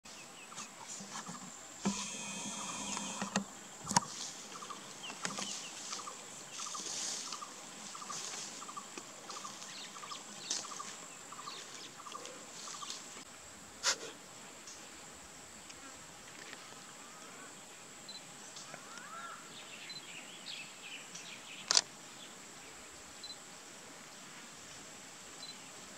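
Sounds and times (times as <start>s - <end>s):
high-pitched insect drone: 1.8s - 8.6s.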